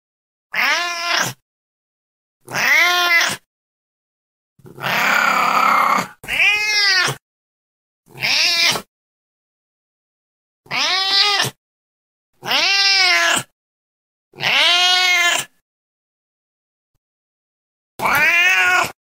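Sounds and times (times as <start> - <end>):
cat meowing: 0.5 - 1.4, 2.5 - 3.4, 4.7 - 7.2, 8.1 - 8.9, 10.7 - 11.6, 12.4 - 13.5, 14.4 - 15.5, 18.0 - 19.0.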